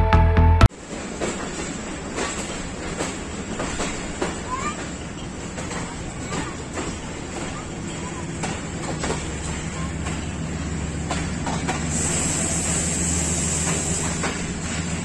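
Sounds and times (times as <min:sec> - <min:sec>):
train wheels clicking over rail joints: 0:00.8 - 0:15.0
high hiss: 0:11.9 - 0:14.4.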